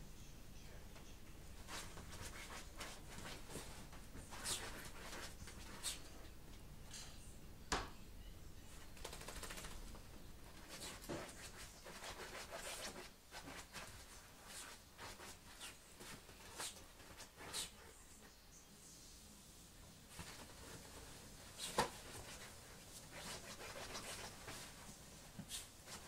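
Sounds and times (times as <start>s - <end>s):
dog paws scratching duvet: 1.6s - 6.1s, 10.5s - 17.9s, 20.1s - 26.0s.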